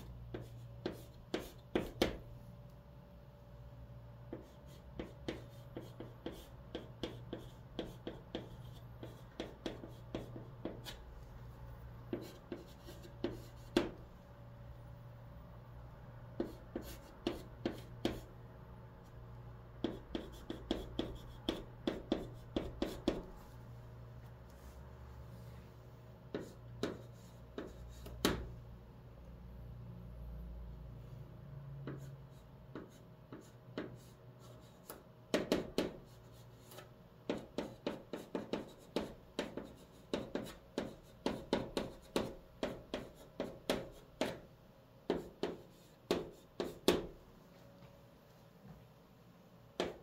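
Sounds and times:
chalk tapping and scratching: 0.0 - 2.3, 4.3 - 11.3, 12.1 - 14.0, 16.4 - 18.3, 19.8 - 23.6, 26.3 - 28.5, 31.8 - 44.5, 45.1 - 47.2, 49.8 - 50.0.

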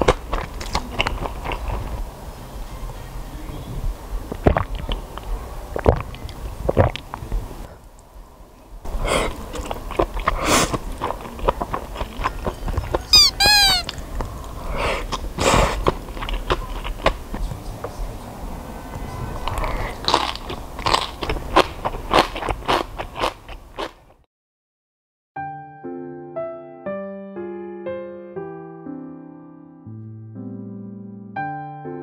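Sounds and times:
slurping noodles: 8.9 - 13.2, 13.8 - 17.2, 19.4 - 24.0
quick falling chirps: 13.1 - 14.0.

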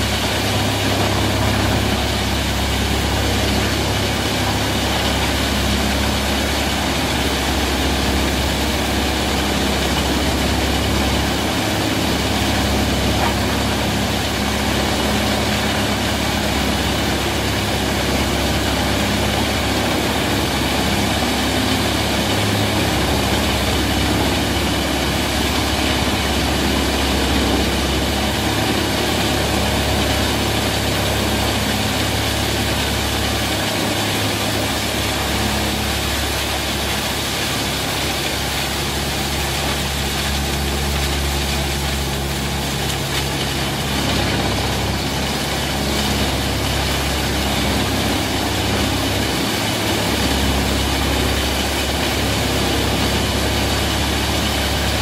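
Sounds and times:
wood chipper engine running: 0.0 - 55.0.

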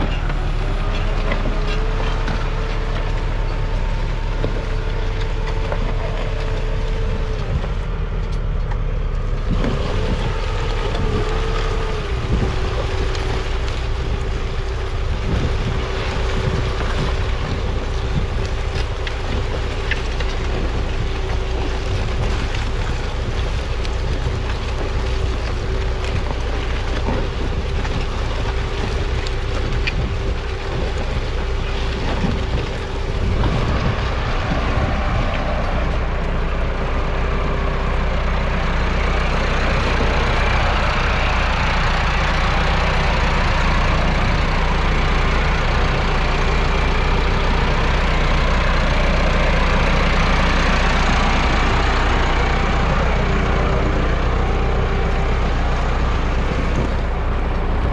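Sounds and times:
plough scraping soil: 0.0 - 8.4, 9.2 - 37.0
tractor diesel engine running: 0.0 - 57.9.

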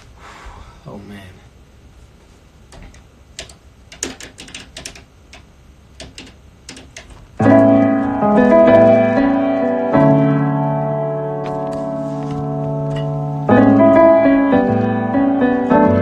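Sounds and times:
piano chords: 7.4 - 16.0.

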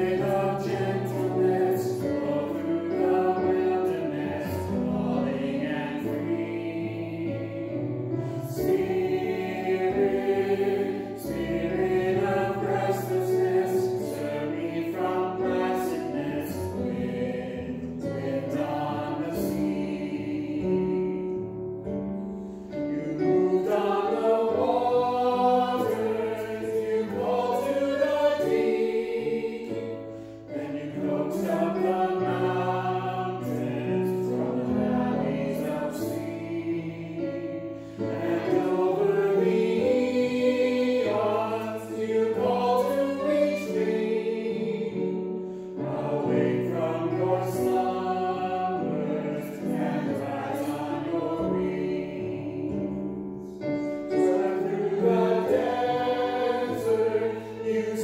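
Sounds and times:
group singing a hymn: 0.0 - 58.0.

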